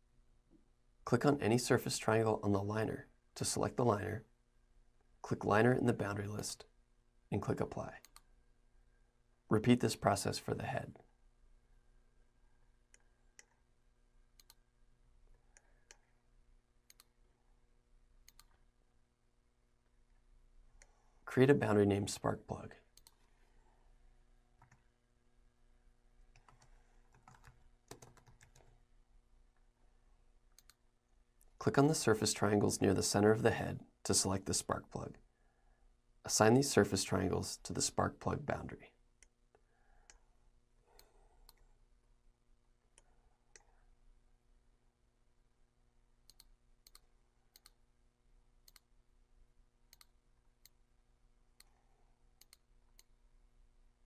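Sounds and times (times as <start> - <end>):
low steady hum: 0.0 - 54.0
computer mouse clicks: 8.0 - 8.3, 12.9 - 13.6, 14.4 - 14.6, 15.5 - 16.2, 16.9 - 17.2, 18.2 - 18.6, 22.9 - 23.3, 24.6 - 24.9, 26.3 - 28.8, 30.5 - 30.8, 40.9 - 41.7, 46.2 - 47.8, 48.6 - 48.9, 49.9 - 50.8, 52.4 - 53.2
keystrokes on computer keyboard: 26.3 - 28.8.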